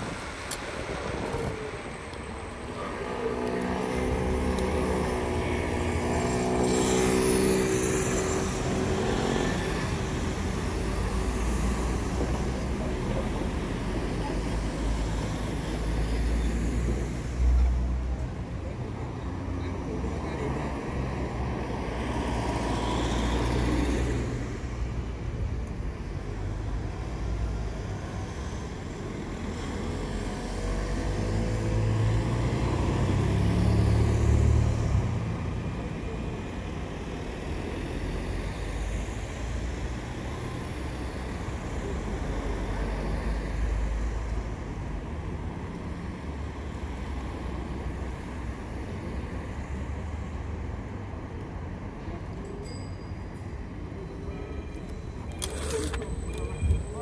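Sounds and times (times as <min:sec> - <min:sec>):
wind buffeting microphone: 0:00.0 - 0:02.0
road and traffic noise: 0:00.0 - 0:57.0.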